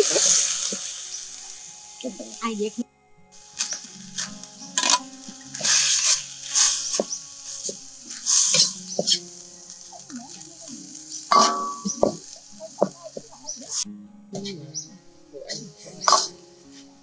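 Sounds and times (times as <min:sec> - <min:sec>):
food sizzling: 0:00.0 - 0:17.0
metal clank on wok: 0:03.6 - 0:06.1, 0:11.3 - 0:12.2
metal ladle scraping a wok: 0:03.6 - 0:09.8, 0:10.9 - 0:12.4, 0:16.0 - 0:16.3.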